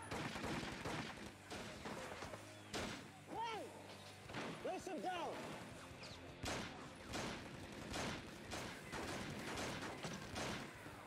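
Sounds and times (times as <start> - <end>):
handgun shots: 6.4 - 10.9.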